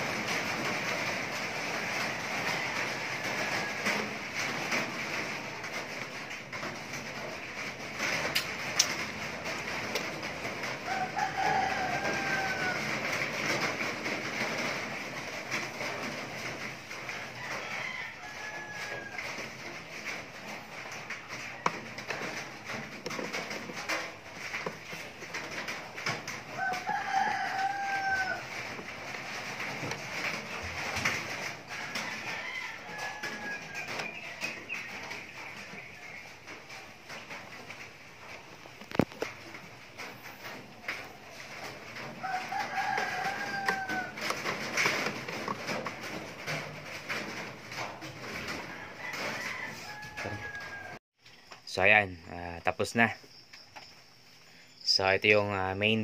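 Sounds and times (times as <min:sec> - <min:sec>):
rooster crowing: 0:01.7 - 0:05.2, 0:10.5 - 0:13.7, 0:16.8 - 0:19.8, 0:25.5 - 0:35.4, 0:40.8 - 0:46.5, 0:47.2 - 0:51.0
hand tools clicking and tapping: 0:18.9 - 0:35.3, 0:38.5 - 0:50.6.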